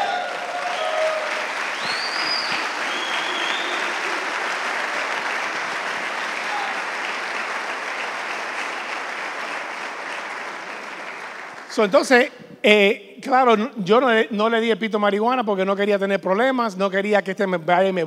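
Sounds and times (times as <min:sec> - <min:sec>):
high-pitched crowd calls: 0:00.0 - 0:05.5
audience applauding: 0:00.0 - 0:12.3.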